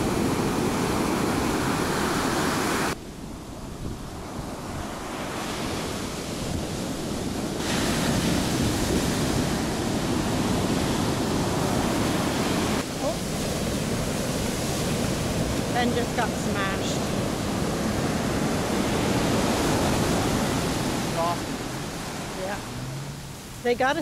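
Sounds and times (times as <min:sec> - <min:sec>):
surf crashing on sand: 0:00.0 - 0:24.0
wind on microphone: 0:00.0 - 0:24.0.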